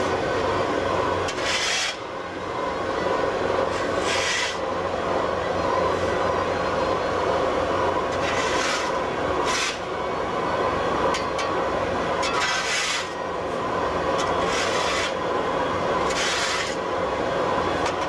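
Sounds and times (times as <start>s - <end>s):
shop machinery humming: 0.0s - 18.0s
tool scraping steel table: 1.3s - 2.0s, 4.0s - 4.6s, 8.1s - 9.8s, 12.3s - 13.2s, 14.2s - 15.2s, 16.1s - 16.8s.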